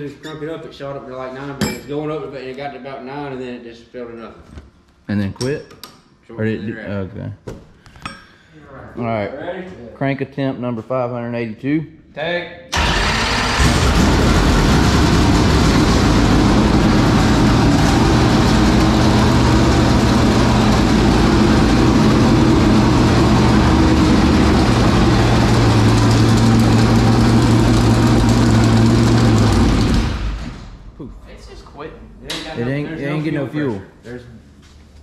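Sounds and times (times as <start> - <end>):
race car engine fast idle: 12.8 - 30.5.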